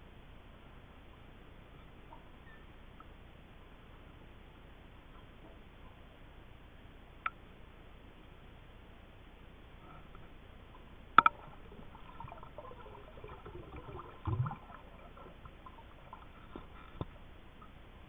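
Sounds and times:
faint squeaks: 0:01.8 - 0:03.0
underwater clicks: 0:11.2 - 0:17.2.

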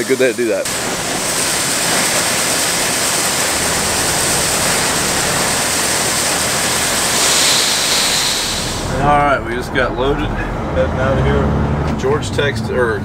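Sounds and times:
corn pouring into trailer: 0:00.0 - 0:09.0
grain auger running: 0:00.7 - 0:09.3.

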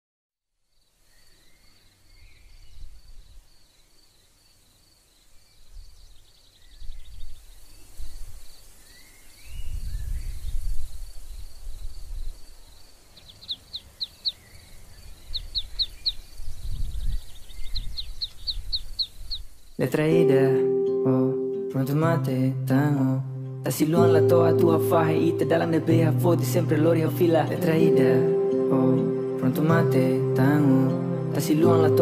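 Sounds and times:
birds chirping: 0:00.8 - 0:22.2.

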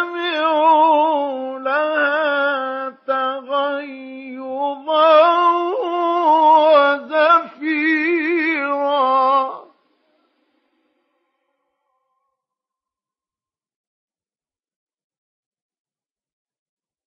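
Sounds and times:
man chanting melodically: 0:00.0 - 0:09.8.

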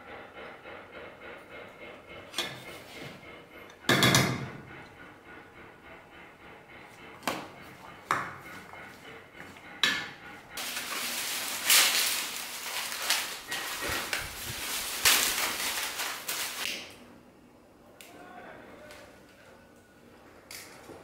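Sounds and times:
dry brushwood crackling and rustling: 0:10.6 - 0:16.7.

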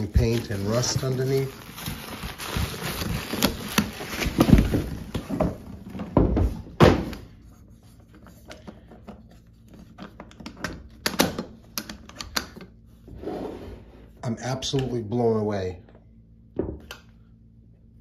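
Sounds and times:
bubble wrap and cardboard crinkling: 0:00.0 - 0:06.1.

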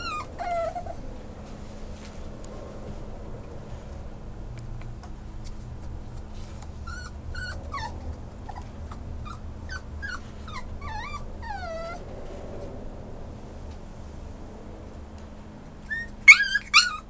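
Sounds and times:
puppy whining: 0:00.0 - 0:01.4, 0:05.8 - 0:12.7, 0:15.7 - 0:17.0
low hum: 0:00.0 - 0:17.0.

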